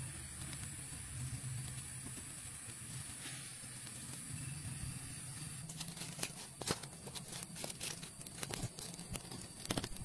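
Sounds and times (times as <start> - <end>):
sharp clicks and crinkles: 5.3 - 10.0.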